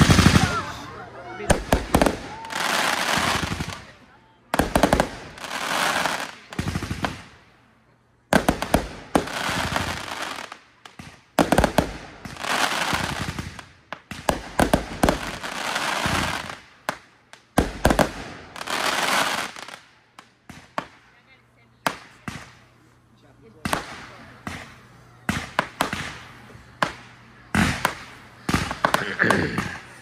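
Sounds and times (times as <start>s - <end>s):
firework bangs: 0.0s - 7.4s, 8.3s - 21.1s, 23.6s - 30.0s
firework crackling hiss: 1.5s - 7.4s, 8.3s - 21.1s.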